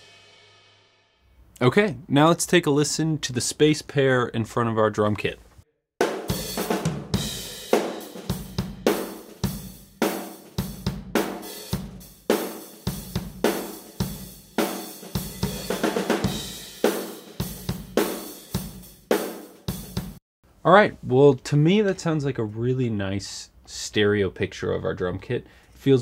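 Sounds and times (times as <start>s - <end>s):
drum kit groove: 0.0s - 0.6s, 6.0s - 20.2s.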